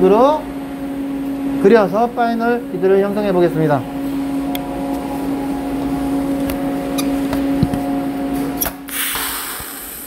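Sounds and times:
electrical hum: 0.0s - 10.0s
welding arc hiss: 8.4s - 10.0s.

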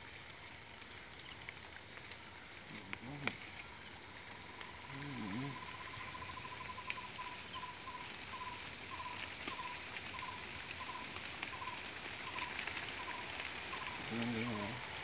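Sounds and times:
small animal chirping: 4.4s - 14.8s
cast net rustling and clicking: 5.7s - 14.8s.

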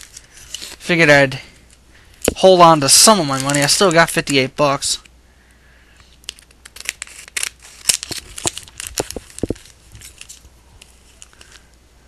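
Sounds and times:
plastic wrapping crinkling: 6.3s - 11.7s.

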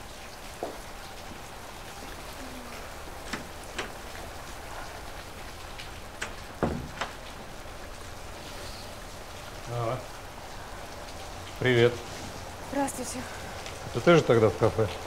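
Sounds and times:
steady rain falling: 0.0s - 15.0s
sharp knocks: 6.6s - 7.2s.

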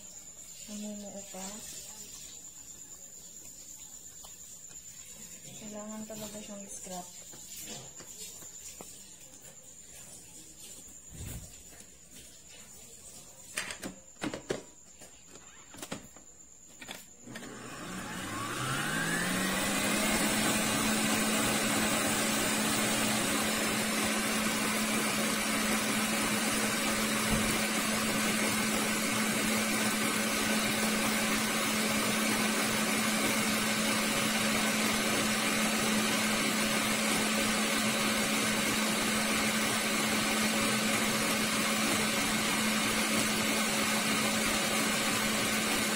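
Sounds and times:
stand mixer motor whining: 17.2s - 45.9s.

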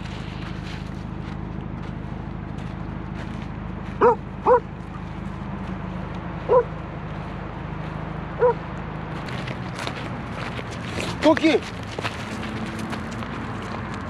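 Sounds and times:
dog barking: 4.0s - 4.7s, 6.5s - 6.7s, 8.4s - 8.6s.

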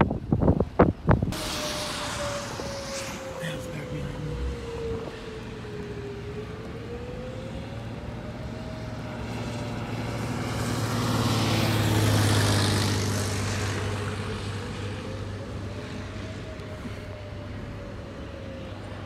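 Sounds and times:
engine and road drone: 0.0s - 19.0s
tyres hissing on wet pavement: 1.3s - 5.9s.

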